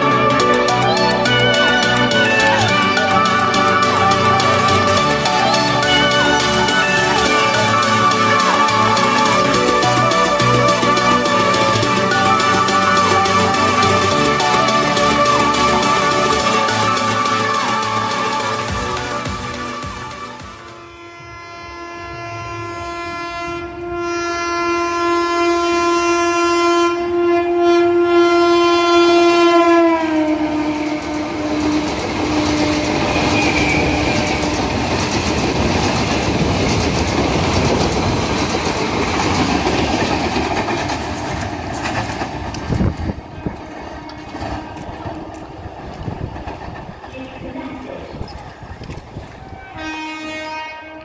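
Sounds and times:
train wheels rattling over track: 0:00.0 - 0:20.8, 0:28.9 - 0:50.7
train horn: 0:00.0 - 0:36.0, 0:42.6 - 0:45.6, 0:49.4 - 0:51.0.

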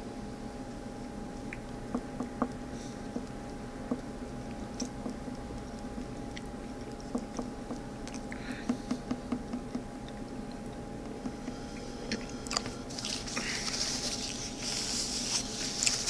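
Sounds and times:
steady room hum: 0:00.0 - 0:16.0
chewing with wet smacks: 0:04.3 - 0:08.4, 0:10.0 - 0:13.3.

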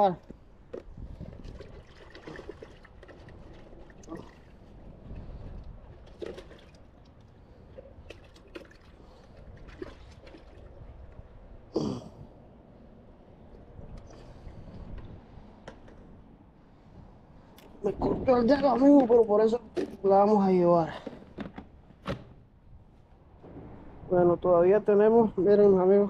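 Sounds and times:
water splashing in a bucket: 0:01.2 - 0:04.7, 0:06.0 - 0:07.0, 0:08.0 - 0:10.8.

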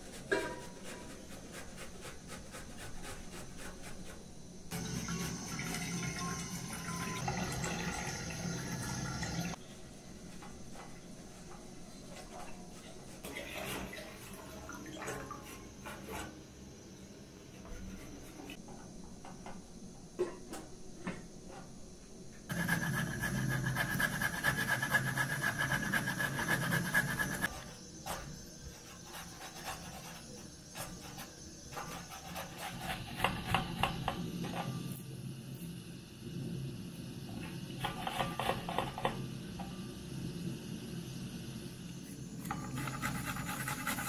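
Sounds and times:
vegetable grated on metal grater: 0:00.0 - 0:04.2, 0:22.5 - 0:27.5, 0:42.5 - 0:44.0.

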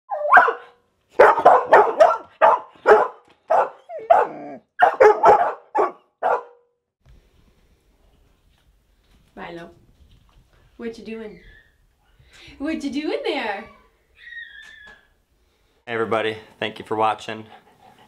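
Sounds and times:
dog barking: 0:00.1 - 0:06.7.

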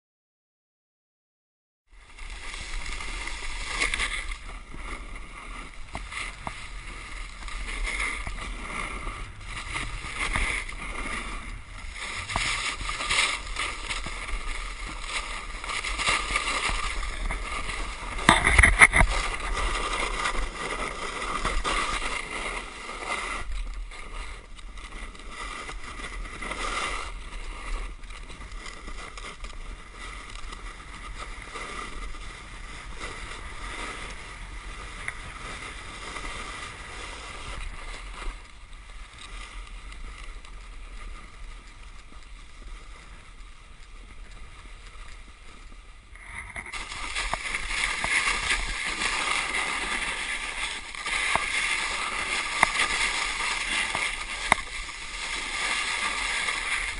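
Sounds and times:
snowboard scraping over snow: 0:02.0 - 0:56.9.

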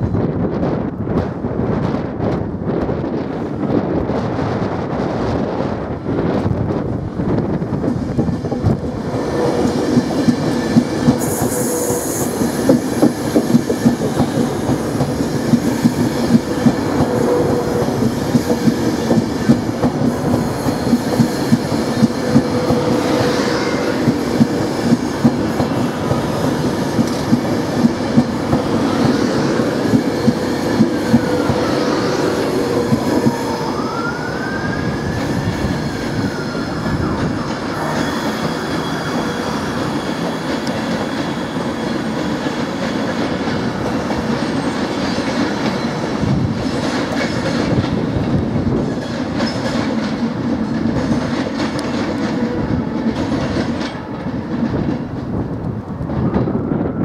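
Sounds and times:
train rumble and hum: 0:00.0 - 0:57.0.

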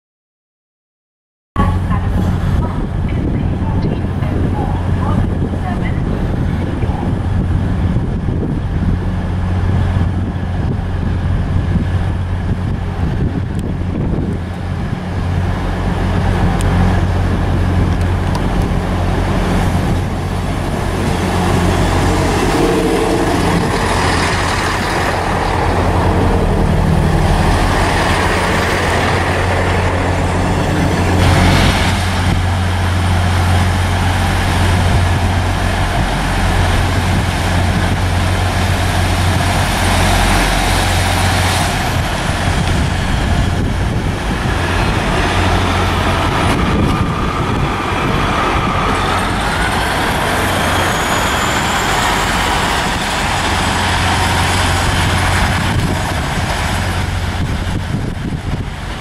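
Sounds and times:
diesel engine drone: 0:01.6 - 0:59.0
train wheels rumbling on rails: 0:01.6 - 0:59.0.

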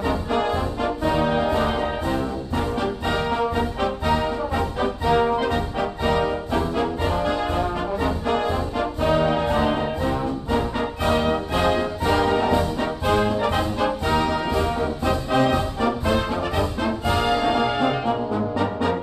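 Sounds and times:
brass background music with beat: 0:00.0 - 0:19.0.

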